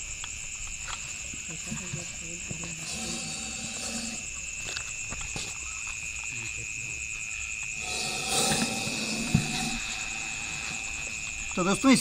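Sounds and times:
night insects chirring: 0.0 - 12.0
loud hissing noise: 2.7 - 4.7, 7.7 - 12.0.

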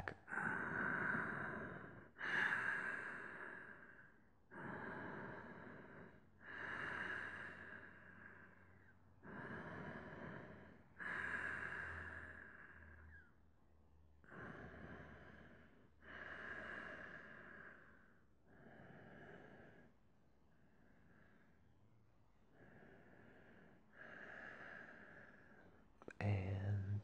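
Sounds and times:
man breathing deeply: 0.0 - 13.3, 22.5 - 25.8.

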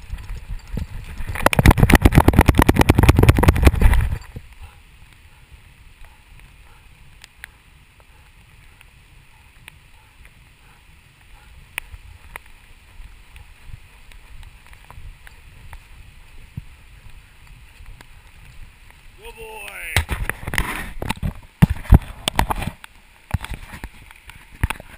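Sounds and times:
running dog's strides thudding: 0.0 - 19.2.

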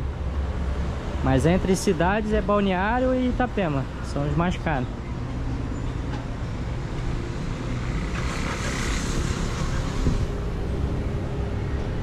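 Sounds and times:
car engine and road rumble: 0.0 - 12.0
road hiss: 7.4 - 11.1.

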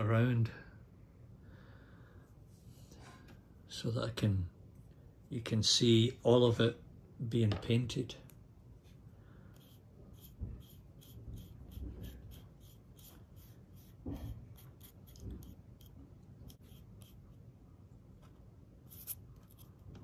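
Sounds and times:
paintbrush scratching on foam: 9.5 - 17.5, 18.8 - 20.0.

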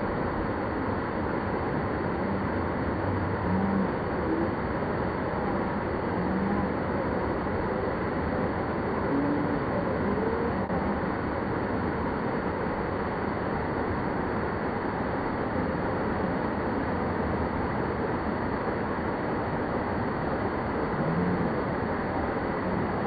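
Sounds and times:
faint voices: 1.9 - 11.8.

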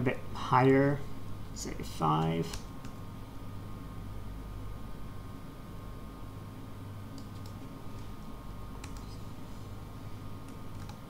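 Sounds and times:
steady low hum: 0.0 - 11.0
keyboard and mouse clicks: 7.1 - 8.1, 8.8 - 9.2, 10.5 - 11.0.

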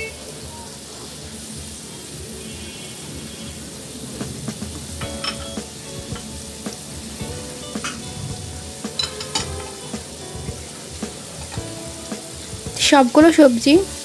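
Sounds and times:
oil sizzling in a pot: 0.0 - 14.0
vegetable pieces knocking on metal: 4.2 - 13.3.

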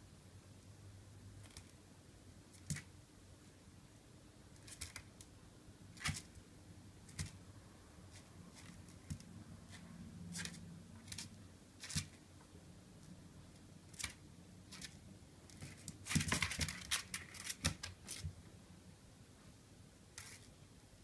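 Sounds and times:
faint steady hum: 0.0 - 21.0
puppy claws clicking and scraping: 4.6 - 5.1, 8.1 - 12.2, 13.9 - 18.3.

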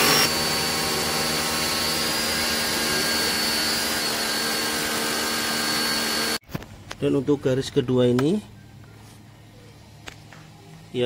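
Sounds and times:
electric pressure washer spraying: 0.0 - 6.4.

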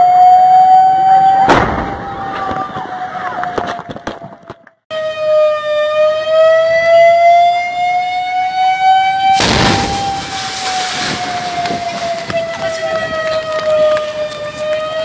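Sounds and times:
fire engine siren wailing: 0.0 - 15.0
burst of rushing noise: 9.4 - 12.3.

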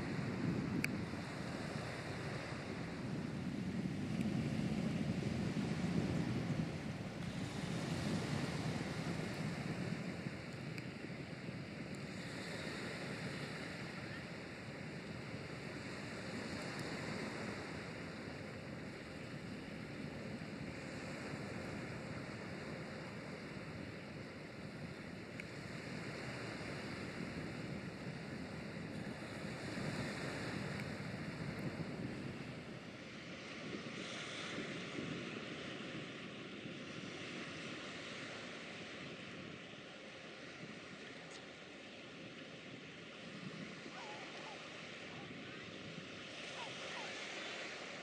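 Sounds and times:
river water: 0.0 - 48.0
wind: 0.0 - 48.0
river water rushing: 43.7 - 48.0.

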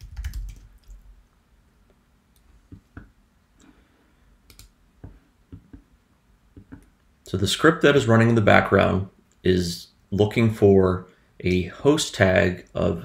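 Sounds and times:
computer keyboard keystrokes: 0.0 - 1.0, 4.5 - 4.7.

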